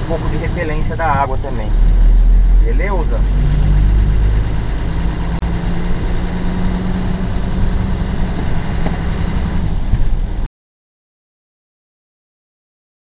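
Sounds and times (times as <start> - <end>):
truck engine rumble with road noise: 0.0 - 10.5.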